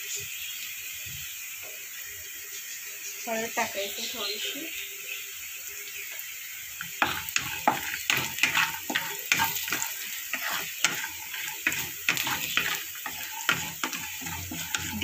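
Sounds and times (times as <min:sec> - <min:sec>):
frying sizzle: 0:00.0 - 0:15.0
spatula scraping pan: 0:06.8 - 0:15.0.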